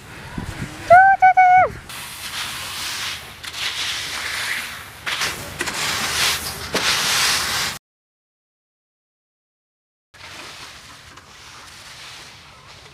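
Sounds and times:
dry rustling and scraping: 2.0s - 7.8s, 10.2s - 12.9s.

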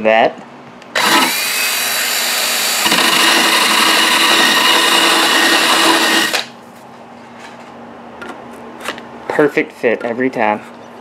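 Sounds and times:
drill grinding ball on rasp: 1.0s - 6.5s.

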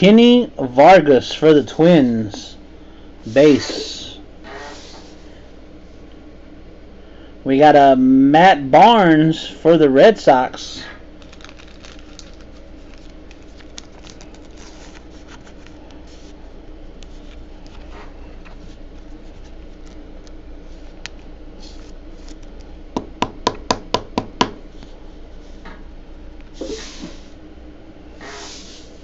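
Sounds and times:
steady low hum: 0.0s - 29.0s
card rustling in plastic holder: 11.2s - 16.4s, 17.0s - 22.6s.

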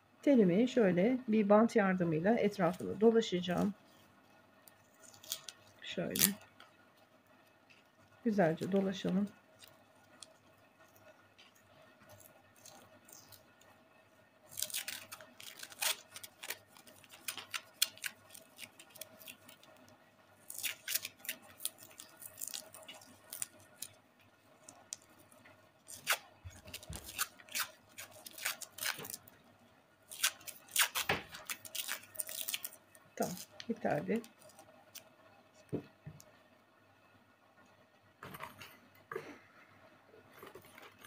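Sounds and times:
adhesive tape crackling and tearing: 5.0s - 6.5s, 12.1s - 13.5s, 14.5s - 19.8s, 20.4s - 24.0s, 25.8s - 29.3s, 30.1s - 35.1s.

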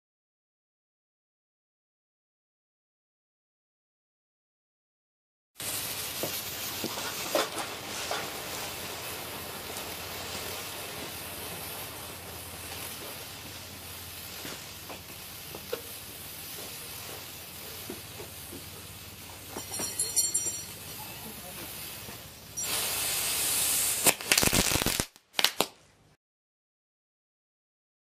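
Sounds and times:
firework hissing and crackling: 5.6s - 25.8s.

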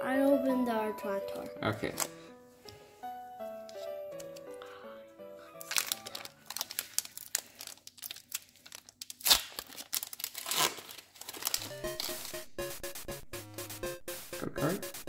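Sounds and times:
background music: 0.0s - 6.7s, 11.5s - 15.0s
foil wrapper crinkling and tearing: 5.6s - 11.6s.

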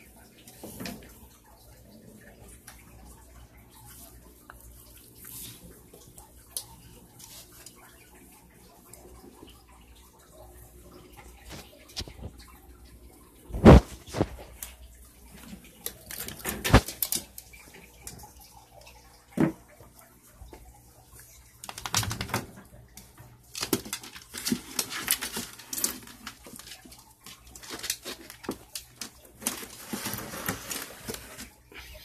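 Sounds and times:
dog scrambling on tiled floor: 21.6s - 22.5s.

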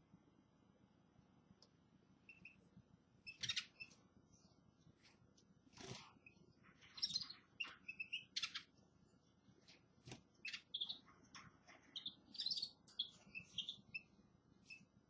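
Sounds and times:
finches chirping: 2.3s - 2.6s, 3.2s - 4.0s, 6.1s - 8.8s, 10.4s - 15.0s.

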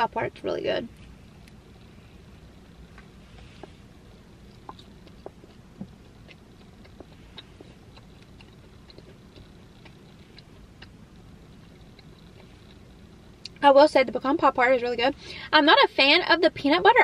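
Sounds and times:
low steady hum: 0.0s - 17.0s
chewing cake: 2.6s - 13.6s.

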